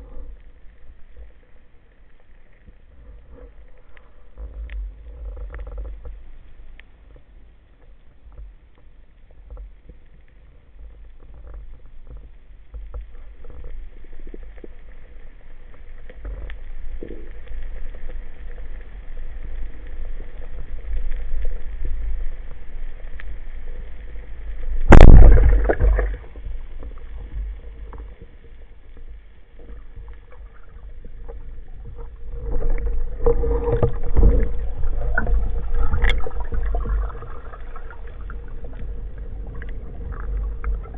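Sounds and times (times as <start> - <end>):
faint ticks: 0.0 - 24.9, 26.1 - 40.9
low underwater rumble: 0.0 - 40.9
speargun firing crack: 24.9 - 26.0.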